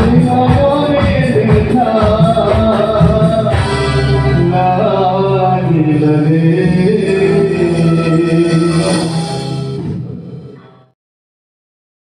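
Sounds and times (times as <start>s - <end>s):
man singing: 0.0s - 9.6s
band playing: 0.0s - 11.0s
keyboard: 0.0s - 11.0s.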